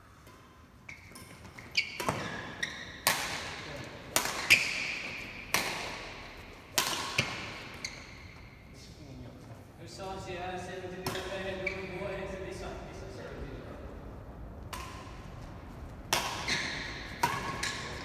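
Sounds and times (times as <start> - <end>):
rackets hitting shuttlecock: 0.2 - 8.6, 11.0 - 11.9, 14.6 - 18.0
court shoes squeaking: 0.7 - 8.9, 11.1 - 12.4, 14.8 - 18.0.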